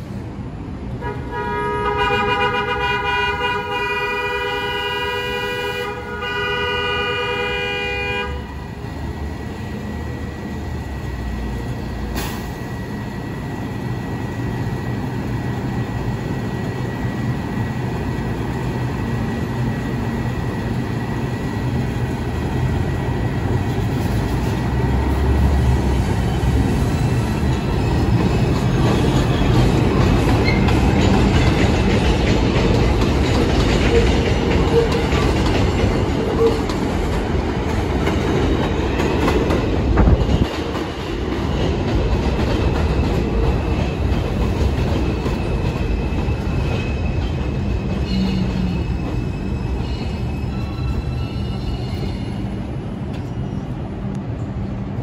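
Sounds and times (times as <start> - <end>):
train rumble: 0.0 - 55.0
subway train horn blasts: 0.9 - 8.7, 36.3 - 36.7.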